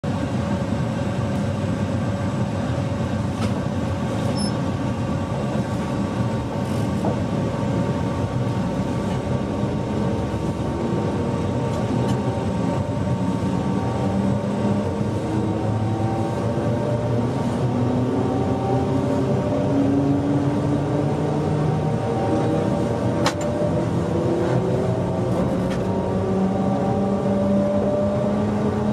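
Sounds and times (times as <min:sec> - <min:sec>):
train running noise: 0:00.0 - 0:28.9.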